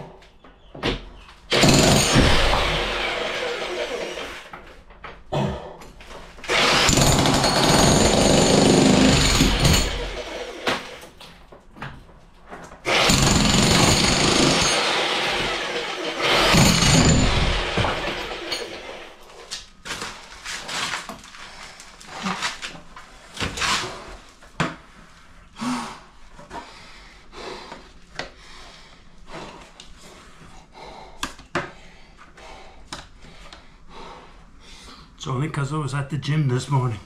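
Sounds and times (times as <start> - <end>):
jackhammer breaking brickwork: 1.5 - 4.5, 6.5 - 11.2, 12.8 - 21.1.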